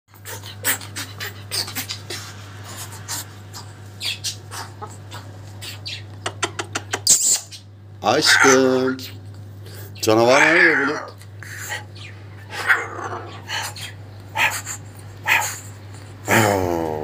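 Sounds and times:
cockatoo hissing and huffing: 0.1s - 6.0s, 9.6s - 16.9s.

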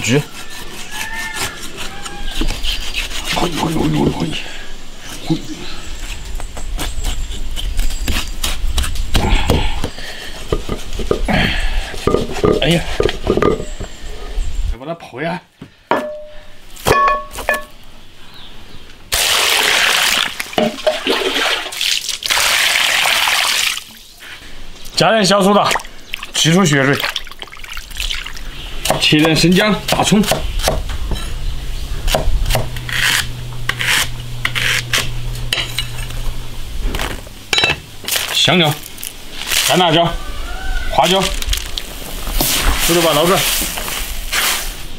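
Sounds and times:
water pouring into a basin: 19.2s - 24.0s, 27.0s - 28.4s
steady low hum: 29.8s - 38.0s.

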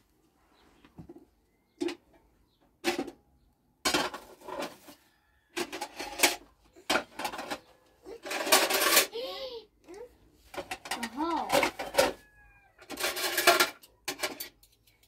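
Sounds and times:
dishes and pots clattering: 3.8s - 5.0s, 5.6s - 9.1s, 10.5s - 12.2s, 12.8s - 15.0s.

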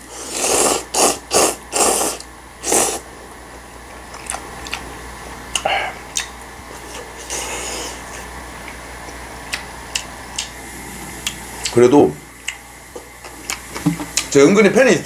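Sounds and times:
noodles slurped: 0.1s - 3.0s
chewing with clicks and smacks: 4.1s - 4.9s, 5.5s - 6.4s, 8.6s - 10.6s, 12.4s - 12.6s, 13.2s - 14.3s.

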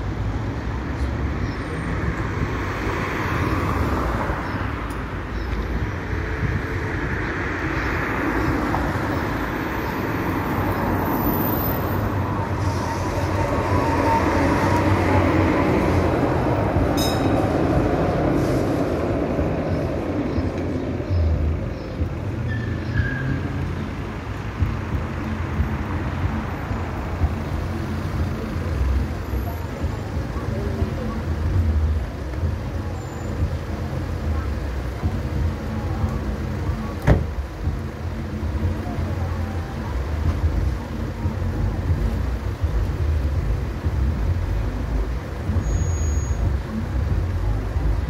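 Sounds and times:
tram rumbling past: 0.0s - 45.8s
idling street traffic: 0.0s - 48.0s.

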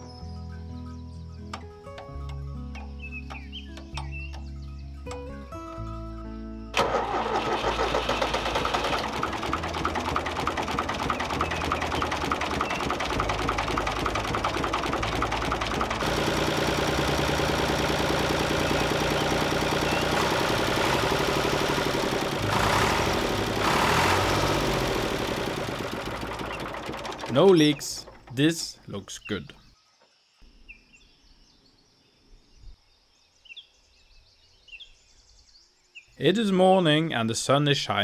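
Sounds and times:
tractor diesel engine running: 6.8s - 28.8s.

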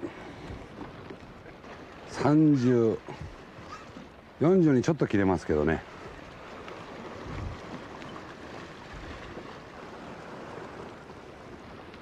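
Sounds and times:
wind buffeting microphone: 5.8s - 12.0s
sea water splashing on rock: 5.9s - 12.0s.

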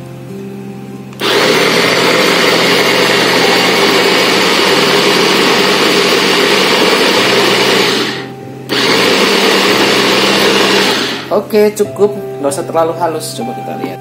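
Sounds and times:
electric food chopper running: 1.2s - 11.3s.

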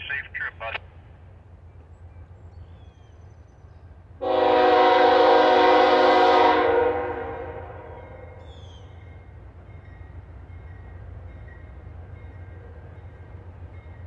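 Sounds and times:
locomotive air horn blast: 4.2s - 8.2s.

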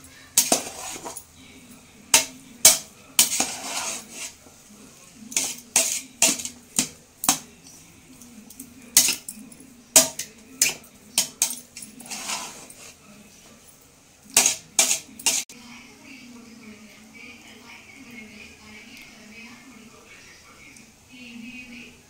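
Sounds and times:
rice rustling when stirred: 0.0s - 1.4s, 2.1s - 9.3s, 9.9s - 13.6s
ladle clinking on metal pot: 5.4s - 7.5s, 8.9s - 9.4s.

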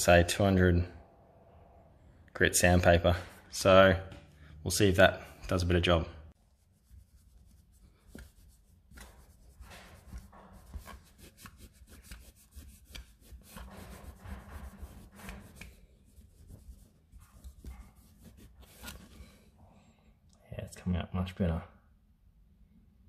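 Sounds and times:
towel scrubbing a wheel: 6.4s - 19.3s.

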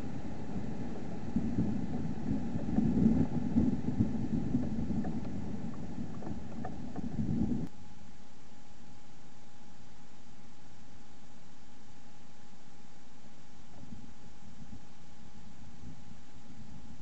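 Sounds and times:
low uneven rumbling: 0.0s - 7.7s, 13.2s - 17.0s
faint ticks: 0.0s - 7.8s.

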